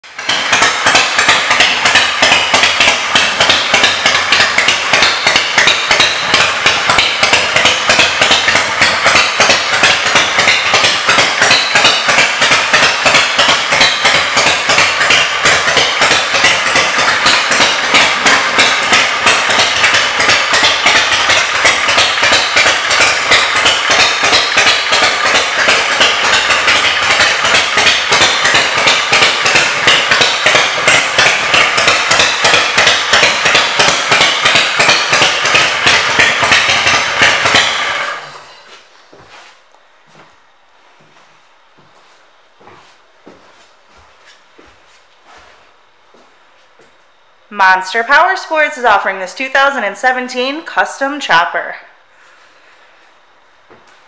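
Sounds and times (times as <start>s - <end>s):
motorcycle engine idling: 0.0s - 38.8s.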